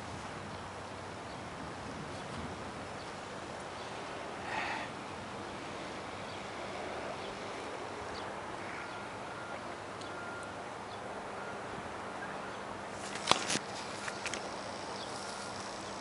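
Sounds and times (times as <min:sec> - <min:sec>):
wind noise: 0:00.0 - 0:04.2.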